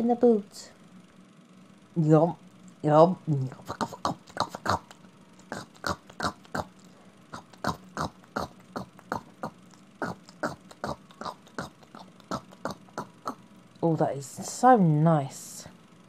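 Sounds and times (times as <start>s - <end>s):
person munching popcorn: 3.7s - 13.4s.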